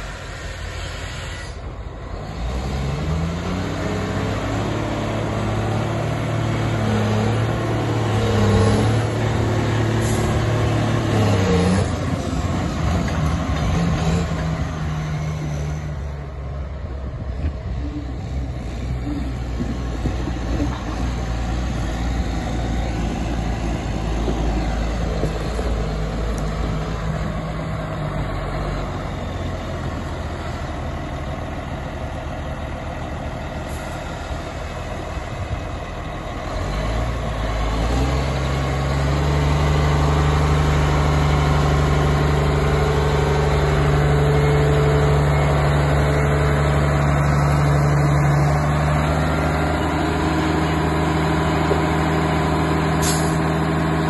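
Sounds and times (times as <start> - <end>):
grader diesel engine running: 0.0 - 54.0.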